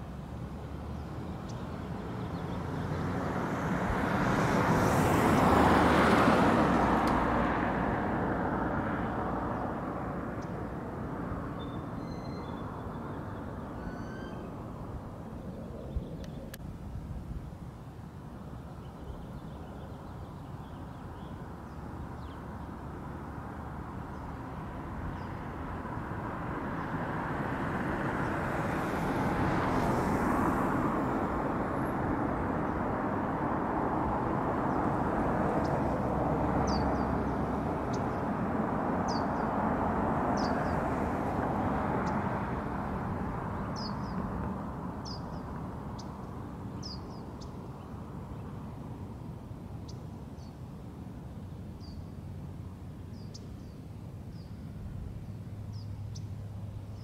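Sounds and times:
vehicle passing: 0.4 - 16.6, 21.1 - 49.4
small birds chirping: 0.9 - 3.1, 10.4 - 10.8, 11.4 - 16.6, 36.6 - 38.3, 39.1 - 39.5, 40.3 - 40.8, 43.6 - 44.3, 45.0 - 48.7, 53.1 - 57.0.

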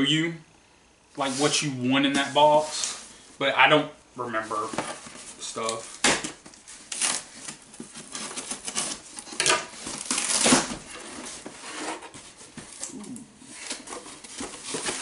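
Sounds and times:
packing paper rustling: 4.4 - 15.0
knife slitting packing tape: 8.1 - 10.8.

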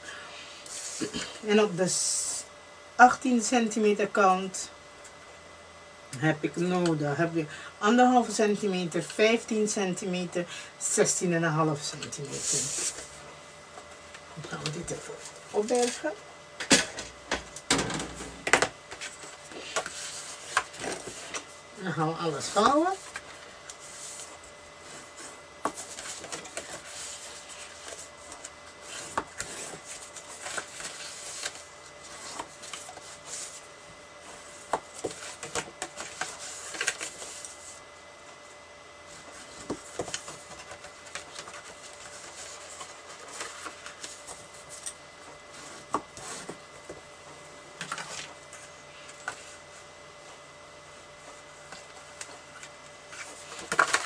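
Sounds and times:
paper rustling and rubbing: 18.9 - 21.6, 22.9 - 37.9, 39.1 - 44.8.

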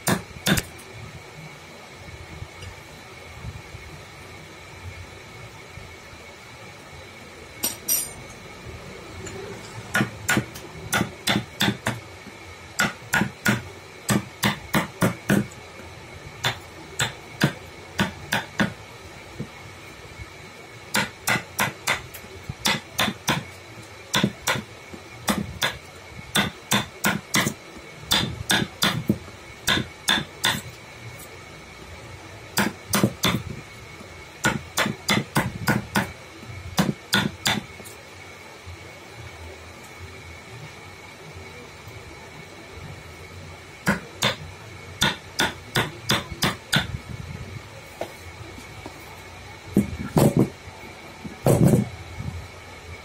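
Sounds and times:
mallet tapping chisel into wood: 36.8 - 37.6.

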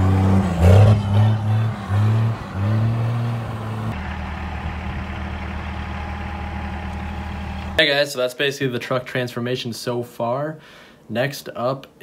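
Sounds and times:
diesel engine revving: 0.0 - 7.8
diesel engine idling: 0.4 - 7.8.

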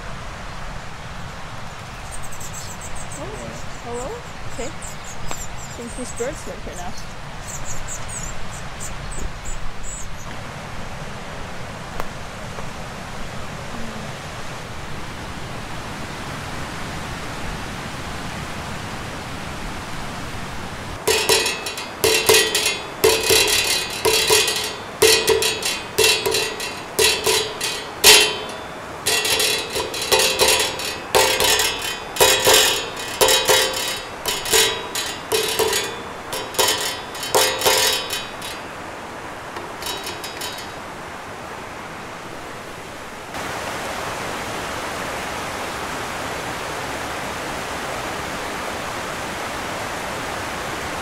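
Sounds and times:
water rushing over weir: 12.6 - 51.0
stick striking metal sign: 21.1 - 38.9, 39.6 - 40.8.

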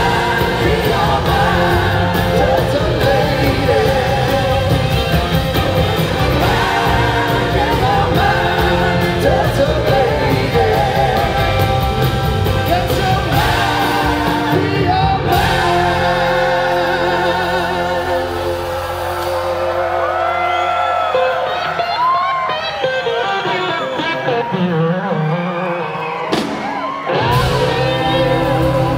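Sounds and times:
live rock band playing: 0.0 - 28.9
crowd whooping: 18.3 - 28.9.

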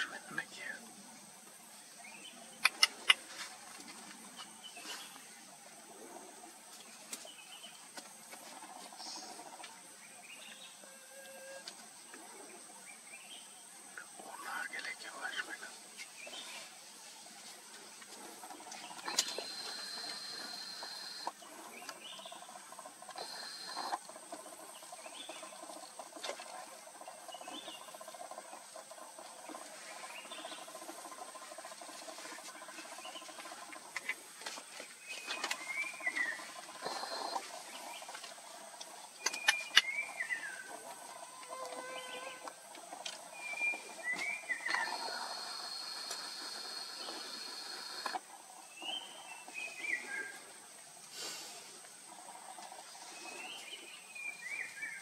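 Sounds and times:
steady high-pitched whine: 0.0 - 55.0
sharp clicks: 2.6 - 3.2.

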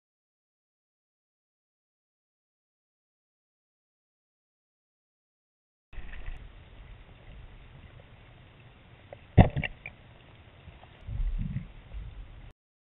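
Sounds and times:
underwater water rumbling: 6.0 - 10.1, 10.9 - 12.5.

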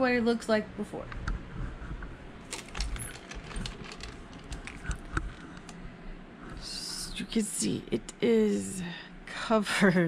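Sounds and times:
closet doors clicking and rattling: 2.4 - 5.7
camera handling rumble: 2.4 - 5.8.

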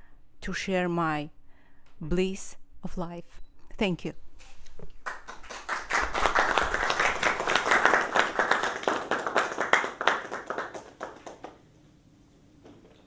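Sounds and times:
people applauding: 5.0 - 11.6.

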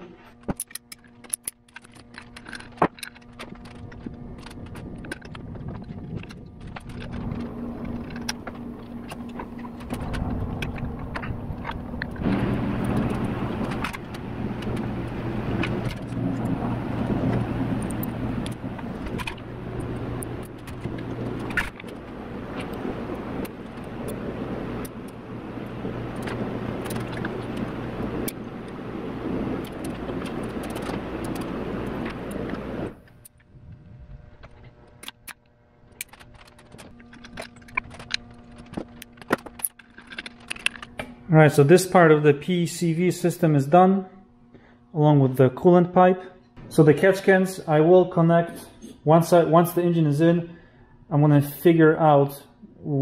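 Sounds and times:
steady low hum: 0.0 - 53.0.

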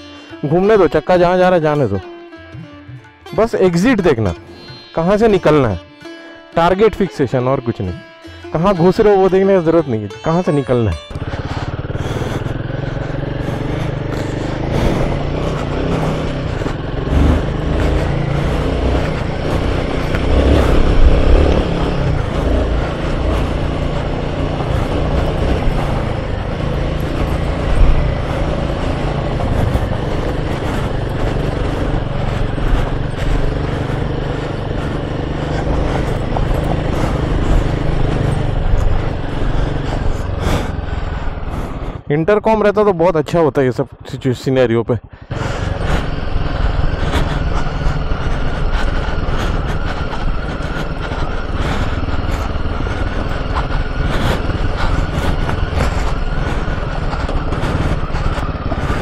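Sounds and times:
motorcycle engine running: 0.0 - 59.0
knocks and rattles over bumps: 11.0 - 42.0, 45.3 - 59.0.

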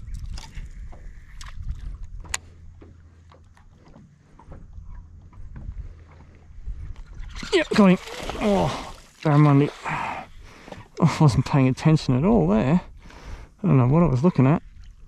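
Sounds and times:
low steady rumble: 0.0 - 7.7
water lapping against boat hull: 0.0 - 15.0.

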